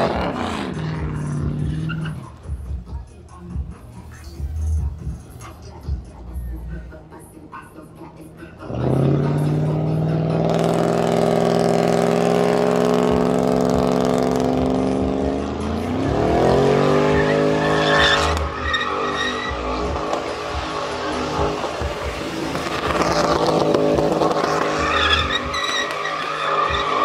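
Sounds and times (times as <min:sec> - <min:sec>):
truck engine revving: 0:00.0 - 0:02.5, 0:08.6 - 0:27.0
tyres squealing: 0:01.3 - 0:02.4, 0:15.8 - 0:27.0.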